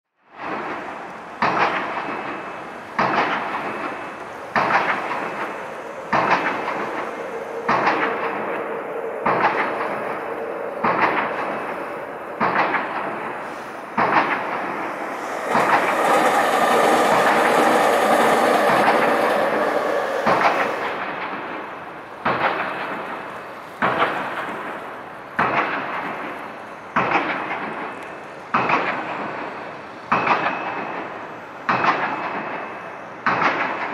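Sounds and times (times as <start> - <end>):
steady rushing noise: 1.0 - 22.0.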